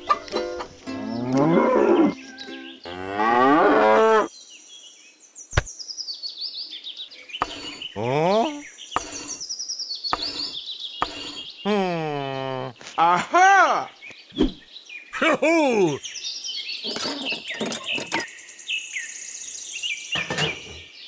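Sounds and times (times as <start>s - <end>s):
cow mooing: 2.9s - 4.3s
high bird chirps: 7.2s - 11.7s.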